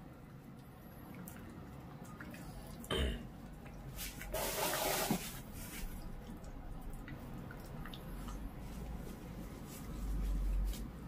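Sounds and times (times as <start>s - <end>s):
dog chewing wet meat: 6.0s - 9.4s.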